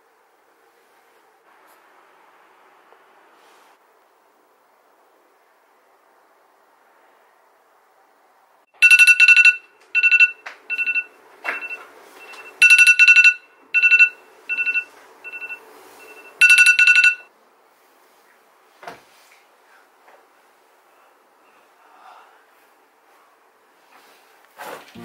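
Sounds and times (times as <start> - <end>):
phone alarm beeping: 8.8 - 17.3.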